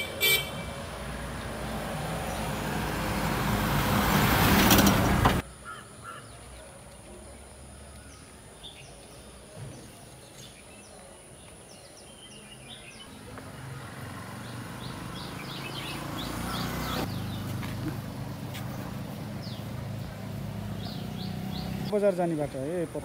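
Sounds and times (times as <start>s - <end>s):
small birds chirping: 5.4s - 23.0s.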